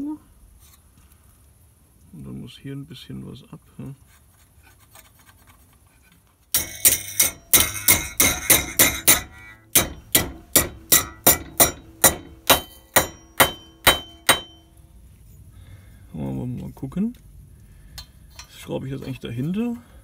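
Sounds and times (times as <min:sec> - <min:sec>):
hammer striking sheet steel: 0:06.6 - 0:14.8.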